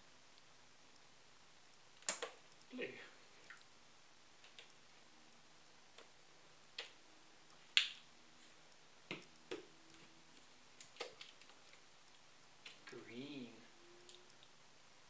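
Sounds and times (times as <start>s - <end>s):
paint blobs clicking and popping: 2.0s - 2.7s, 4.4s - 4.8s, 9.1s - 12.9s.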